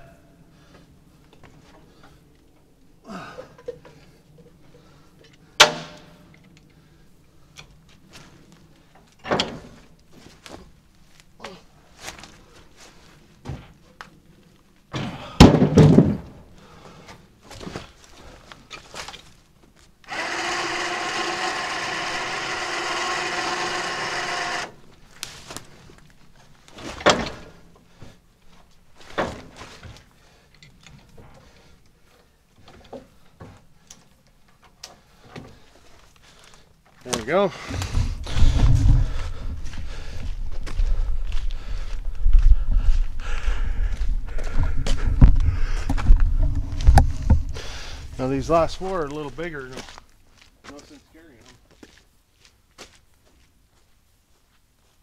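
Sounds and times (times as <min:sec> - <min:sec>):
firewood thunking on truck bed: 0:14.9 - 0:16.4
small motor running: 0:20.1 - 0:24.8.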